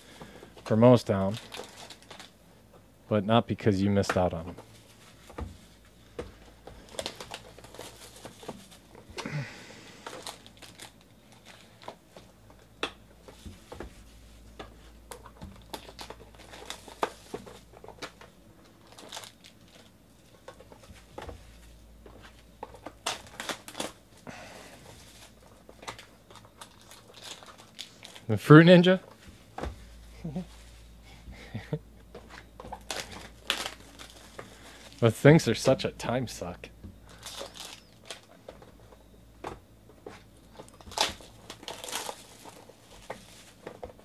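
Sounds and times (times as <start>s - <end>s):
foil wrappers crinkling and tearing: 0.0s - 2.4s, 6.7s - 12.3s, 15.1s - 29.2s, 32.4s - 35.8s, 37.0s - 38.7s, 40.0s - 44.0s.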